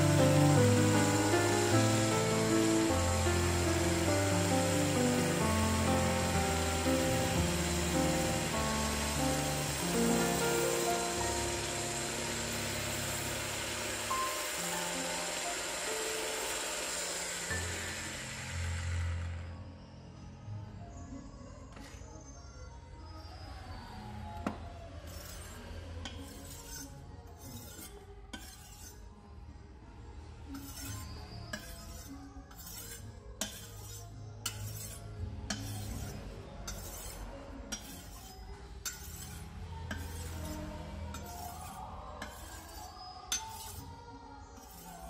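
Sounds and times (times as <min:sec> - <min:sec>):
background music: 0:00.0 - 0:20.7
knife blade being sharpened: 0:27.5 - 0:29.0, 0:30.6 - 0:43.9.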